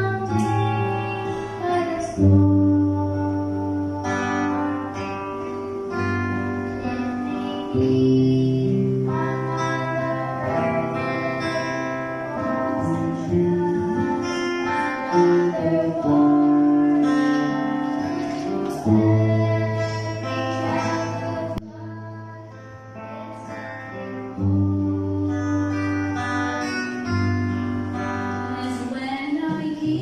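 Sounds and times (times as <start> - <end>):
women singing gospel: 0.0 - 5.3, 6.8 - 22.5, 28.4 - 30.0
strummed acoustic guitar: 0.0 - 30.0.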